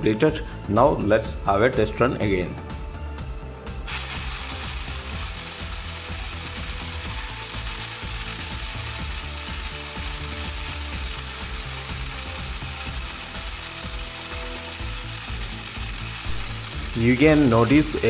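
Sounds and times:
toy motor drivetrain rattling: 3.9s - 18.0s.

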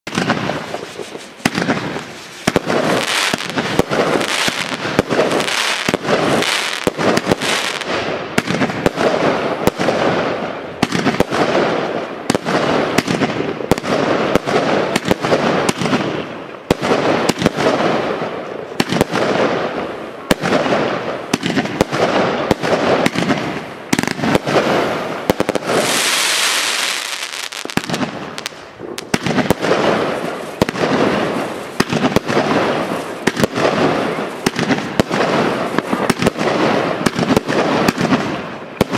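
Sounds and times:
fireworks banging: 0.0s - 38.9s
firework hissing: 0.2s - 8.1s, 23.9s - 36.2s.

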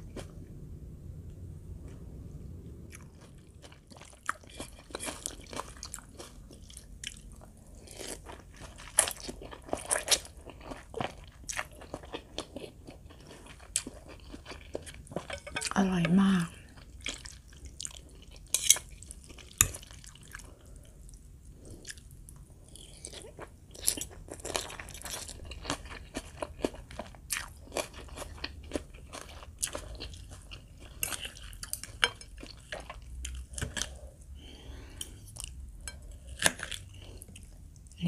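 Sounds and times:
chewing and crunching: 2.9s - 34.2s, 34.9s - 38.0s
cutlery clicking on ceramic bowls: 15.3s - 15.8s.

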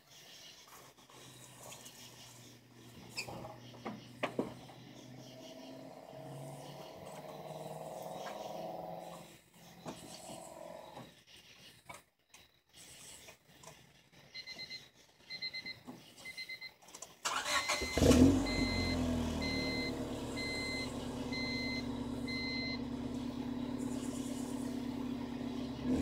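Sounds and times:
car engine cranking: 1.6s - 10.4s, 17.2s - 26.0s
short electronic beeps: 17.4s - 22.8s.

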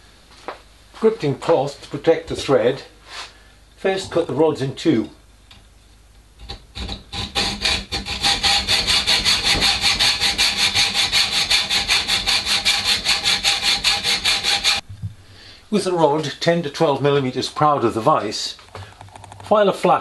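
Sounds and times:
hacksaw cutting metal rod: 6.4s - 14.8s.

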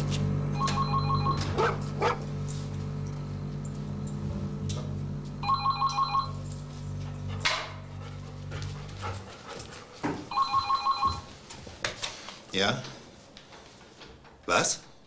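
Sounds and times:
telephone ringing: 0.5s - 1.6s, 5.4s - 6.4s, 10.3s - 11.3s.

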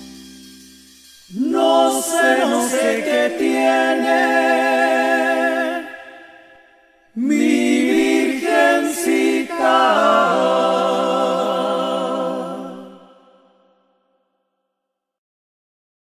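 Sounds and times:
group singing without words: 1.2s - 14.0s.

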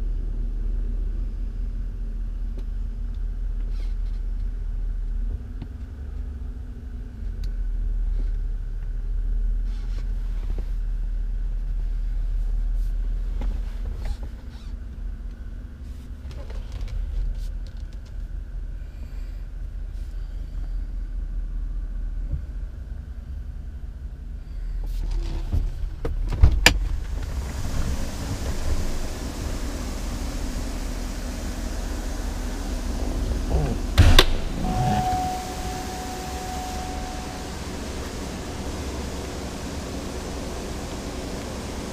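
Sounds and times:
engine rumble inside car: 0.0s - 41.9s
steady hiss: 27.0s - 41.9s.

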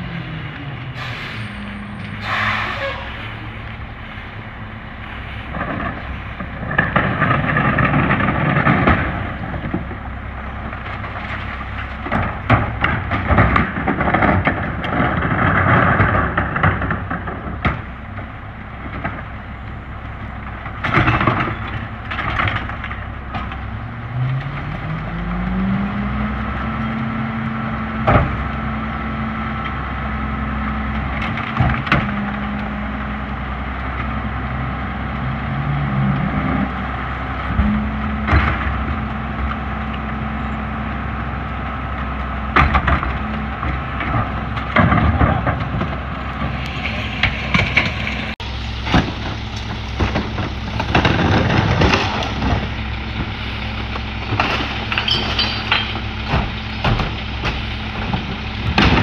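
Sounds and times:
garbage truck diesel idling: 44.7s - 59.0s.

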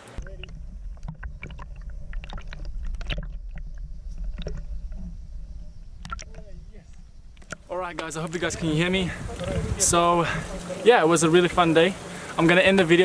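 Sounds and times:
underwater low rumble: 0.0s - 10.8s
small underwater clicks: 0.2s - 8.2s.

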